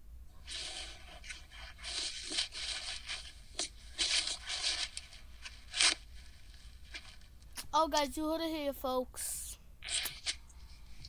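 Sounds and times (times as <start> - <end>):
rustling and scraping: 0.4 - 7.6.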